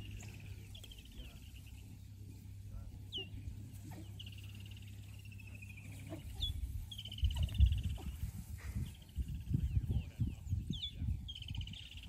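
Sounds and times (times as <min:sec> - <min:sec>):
animal grunts and snorts: 0:03.0 - 0:09.1
bird trilling and chirping: 0:03.1 - 0:12.0.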